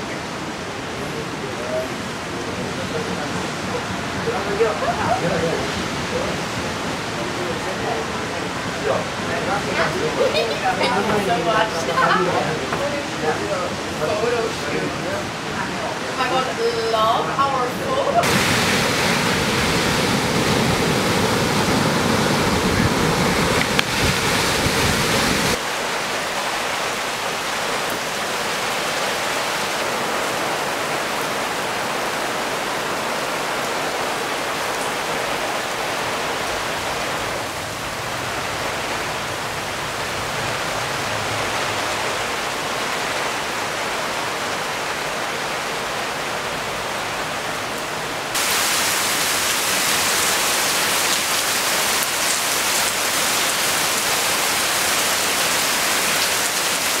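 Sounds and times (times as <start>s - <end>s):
rain falling: 0.0s - 57.0s
surf breaking on beach: 18.2s - 27.4s
steady rushing hiss: 48.2s - 57.0s.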